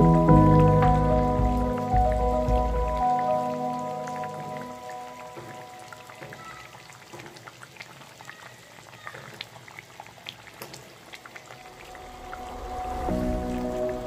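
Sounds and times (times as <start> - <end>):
soft sizzle: 0.0 - 14.0
sauce bubbling and popping: 4.2 - 8.3, 9.2 - 12.4.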